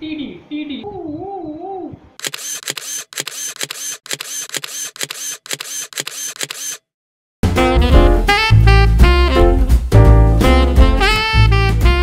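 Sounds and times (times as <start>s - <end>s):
camera shutter clicks: 2.2s - 6.8s.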